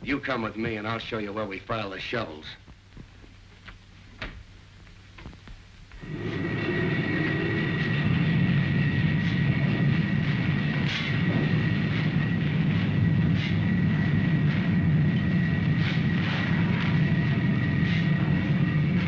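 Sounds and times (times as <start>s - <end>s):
thin high whine: 5.2s - 19.0s
heavy machinery rumble: 6.0s - 19.0s.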